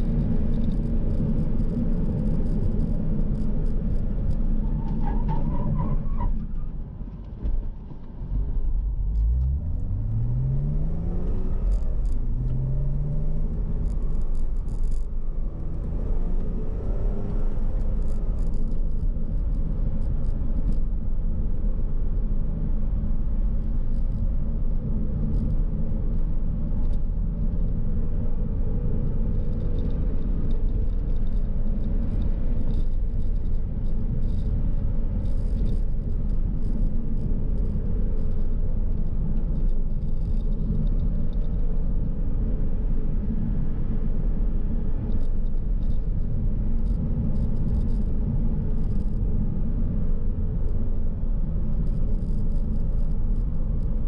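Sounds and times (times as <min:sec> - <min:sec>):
car engine and tyres rumbling: 0:00.0 - 0:54.0
light ticks and rattles: 0:11.6 - 0:15.9, 0:17.0 - 0:21.0, 0:29.3 - 0:41.7, 0:45.0 - 0:49.5, 0:51.7 - 0:54.0.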